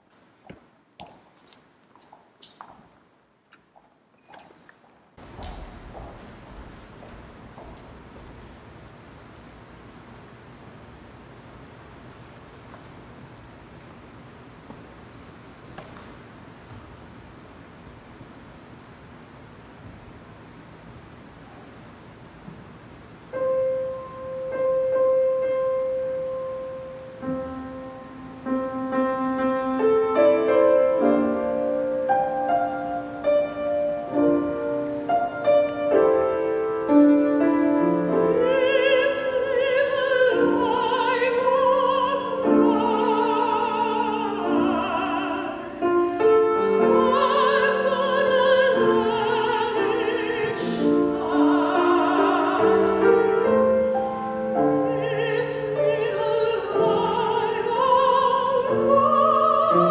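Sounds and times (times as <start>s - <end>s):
grand piano playing: 23.3s - 59.9s
woman singing with vibrato: 37.4s - 59.9s.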